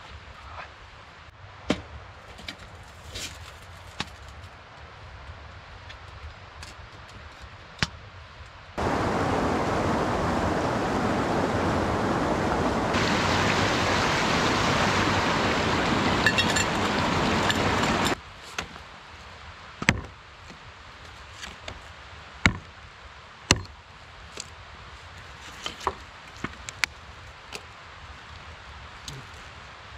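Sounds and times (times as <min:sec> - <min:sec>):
stream water flowing: 0:08.8 - 0:18.2
hatchet chopping wood: 0:19.8 - 0:20.2, 0:22.4 - 0:22.7, 0:23.5 - 0:23.8.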